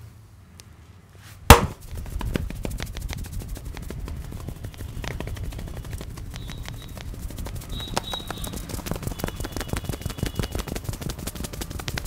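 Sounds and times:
hand strikes on head: 1.5 - 2.4.

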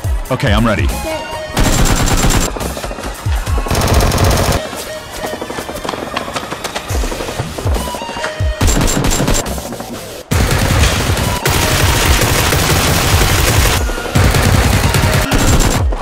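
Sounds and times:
background music: 0.0 - 16.0
machine-gun fire: 1.6 - 4.7, 8.6 - 9.7, 10.3 - 16.0.

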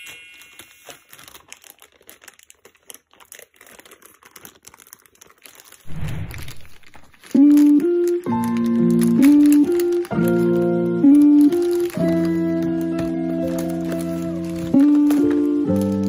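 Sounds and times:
plastic bag crinkling: 0.0 - 16.0
music with sustained notes: 7.4 - 16.0.

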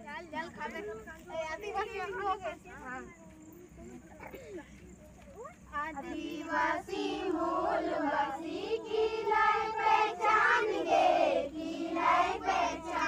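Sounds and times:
group of girls singing: 6.0 - 13.0.

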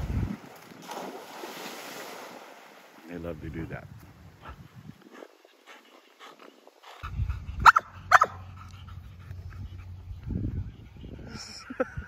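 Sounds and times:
dog barking: 7.6 - 8.4.

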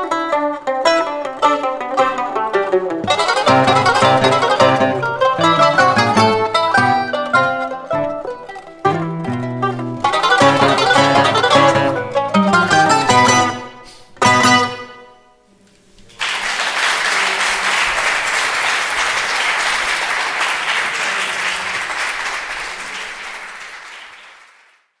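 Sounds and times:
mandolin quartet playing: 0.0 - 16.2
audience applauding: 3.1 - 6.4, 16.1 - 25.0.

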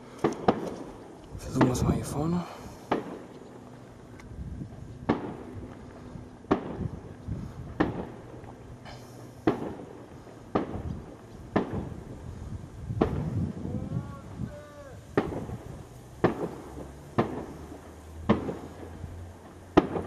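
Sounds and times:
firework bangs with echo: 0.0 - 0.9, 1.5 - 3.3, 5.0 - 5.6, 6.5 - 7.1, 7.7 - 8.3, 8.9 - 12.1, 12.9 - 13.5, 14.6 - 20.0.

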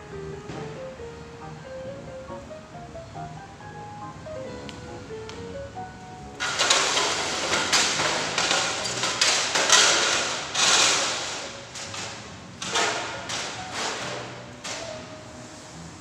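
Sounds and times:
faint background music: 0.0 - 16.0
rustling and crackling with clicks: 6.4 - 15.1.

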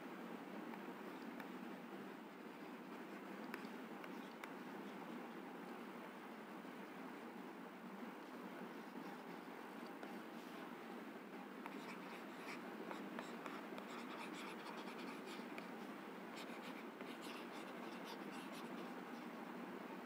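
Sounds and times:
stylus scratching on tablet: 11.6 - 19.4.

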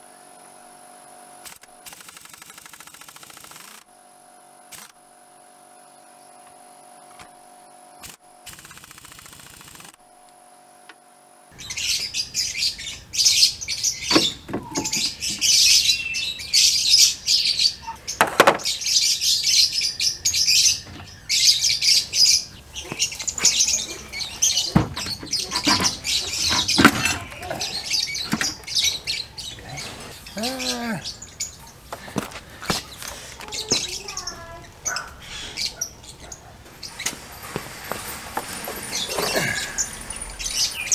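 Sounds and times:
birds chirping: 0.0 - 8.4, 10.1 - 40.9
sharp knocks: 18.2 - 18.7.

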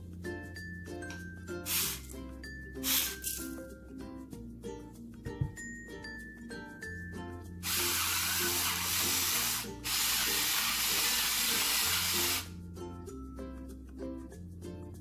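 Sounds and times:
background music: 0.0 - 15.0
pepper mill grinding: 7.6 - 12.5.

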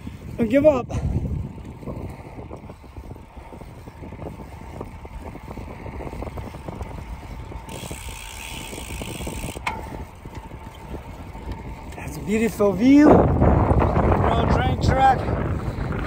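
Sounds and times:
bicycle tyres on road: 0.0 - 16.0
wind buffeting the microphone: 0.0 - 16.0.

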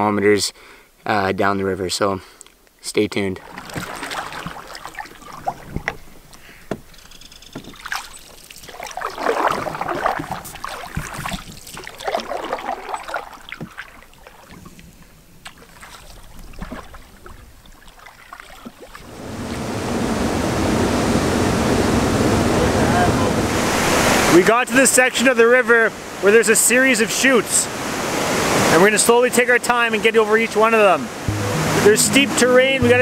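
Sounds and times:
fast-moving water rushing: 3.4 - 6.3, 7.7 - 14.6, 15.6 - 33.0
canoe paddles swishing through water: 3.4 - 33.0.

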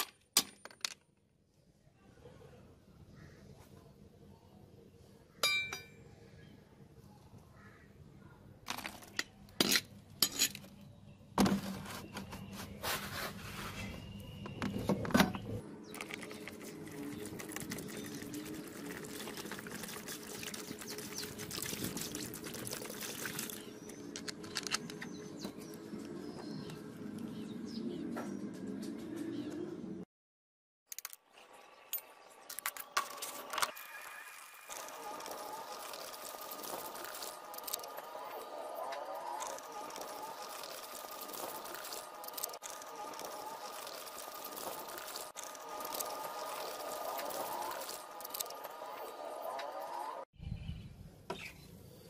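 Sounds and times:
metal clink: 5.4 - 6.0
water pouring into plastic tub: 16.6 - 23.6, 34.3 - 37.8, 39.4 - 48.5.

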